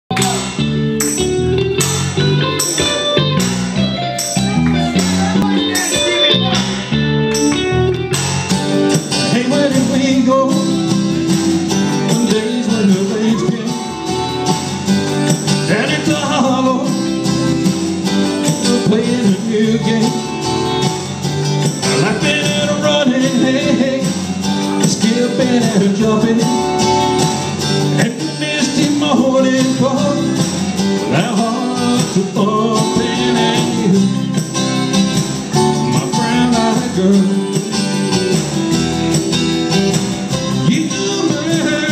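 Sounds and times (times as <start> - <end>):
country music with guitar: 0.1 - 41.9
man singing into microphone: 8.9 - 14.4, 15.5 - 20.9, 21.6 - 34.5, 35.6 - 38.1, 40.5 - 41.9.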